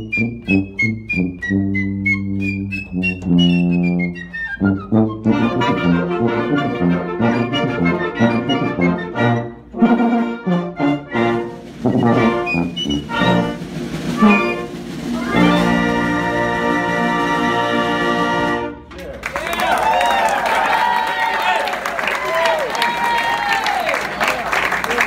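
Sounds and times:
piccolo melody: 0.0s - 18.8s
concert band playing: 0.0s - 18.9s
tuba low notes: 0.0s - 18.9s.

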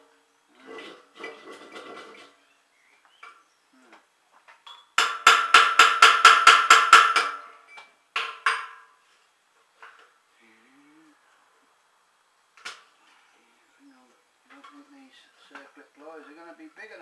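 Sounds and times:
hammer striking steel: 5.0s - 7.5s.

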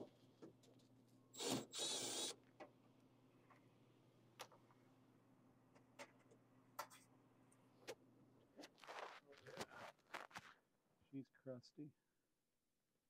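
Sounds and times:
cordless drill whining: 1.4s - 2.4s.

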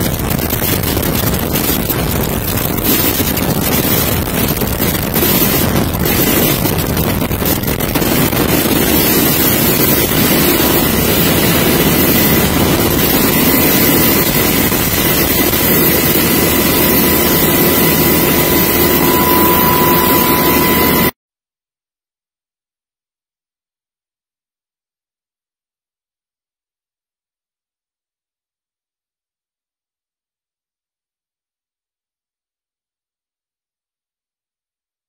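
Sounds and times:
wind buffeting microphone: 0.0s - 21.0s
helicopter turbine and rotor noise: 0.0s - 21.2s.

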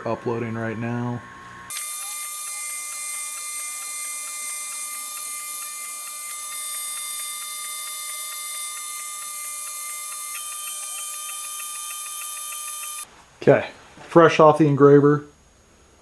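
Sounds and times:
stepper motor whine: 1.0s - 13.1s
laser engraver hiss: 1.7s - 13.1s
rapid light ticking: 2.7s - 13.0s.

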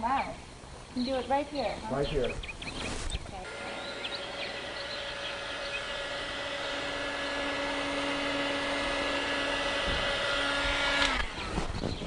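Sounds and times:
heat gun fan humming: 0.5s - 12.0s
second lower hum: 3.4s - 12.0s.

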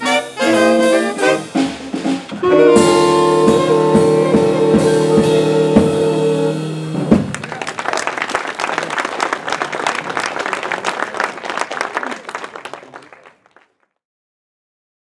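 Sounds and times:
saxophone band playing: 0.0s - 13.2s
audience applause: 7.2s - 13.8s.

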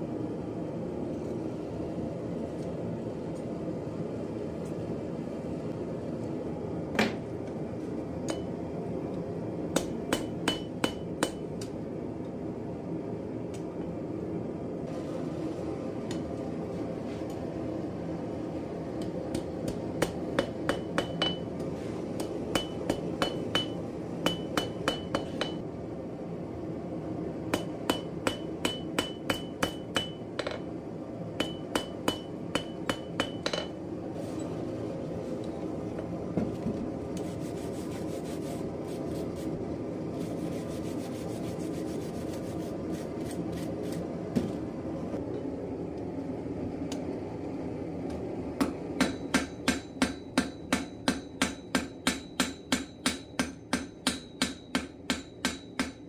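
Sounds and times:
hammer striking metal on anvil: 8.3s - 8.5s, 9.8s - 11.7s, 19.0s - 21.6s, 22.2s - 25.6s, 27.5s - 30.6s, 31.4s - 33.8s, 48.6s - 56.0s.

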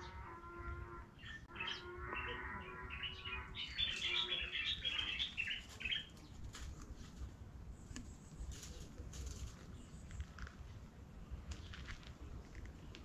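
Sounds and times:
bird held call: 0.0s - 6.0s
birds chirping: 0.0s - 10.6s.

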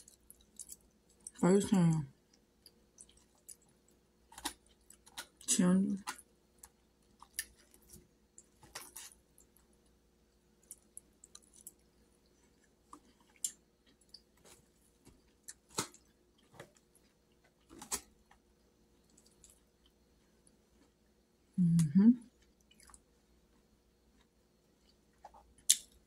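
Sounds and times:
person chewing soft food: 0.0s - 1.4s, 2.2s - 21.2s, 22.3s - 26.0s.

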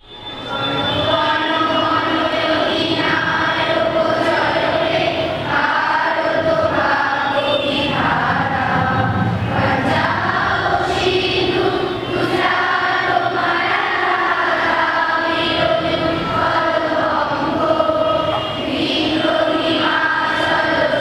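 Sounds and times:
girls singing in unison: 0.9s - 21.0s.

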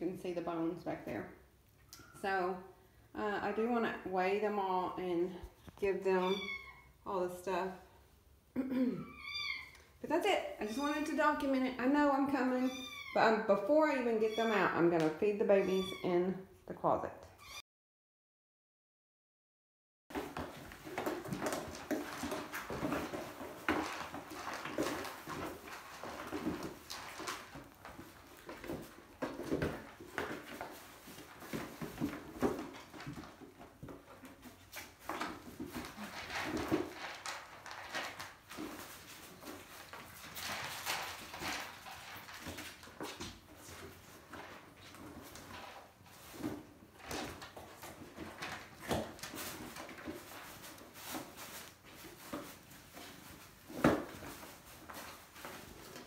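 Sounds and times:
kittens knocking cardboard boxes: 20.1s - 56.0s
paws scuffling on wooden floor: 20.1s - 56.0s.

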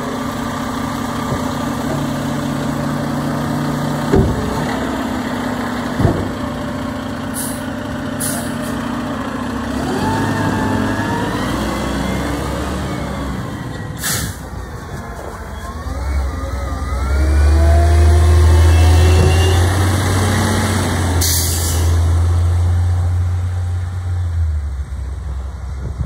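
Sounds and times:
diesel truck engines droning: 0.0s - 26.0s
air brake hiss: 7.4s - 8.8s, 14.0s - 14.5s, 21.2s - 22.0s.

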